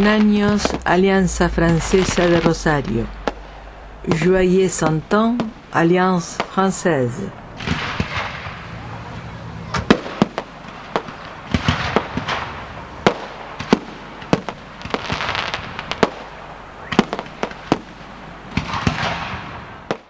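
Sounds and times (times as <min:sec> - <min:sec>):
fireworks bangs and cracks: 0:04.8 - 0:09.2, 0:09.8 - 0:20.0
crackling hiss of bursting shells: 0:10.1 - 0:20.0.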